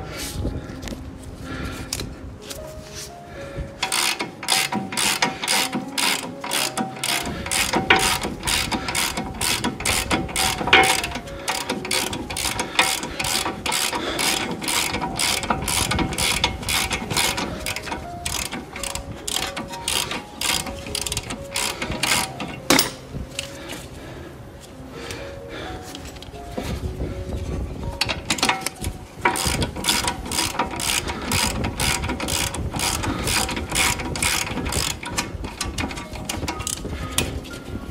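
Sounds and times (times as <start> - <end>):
hand ratchet clicking: 3.8 - 23.6, 27.8 - 37.6.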